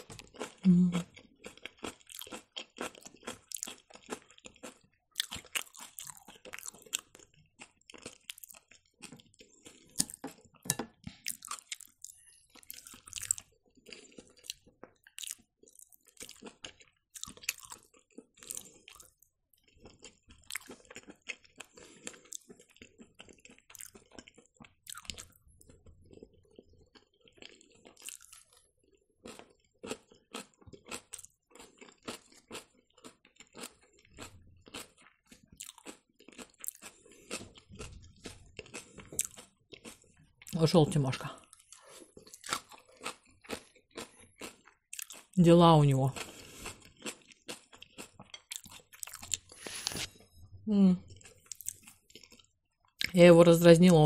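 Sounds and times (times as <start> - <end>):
chewing with wet smacks: 0.0 - 40.6, 41.4 - 45.4, 46.2 - 49.6, 51.1 - 53.2.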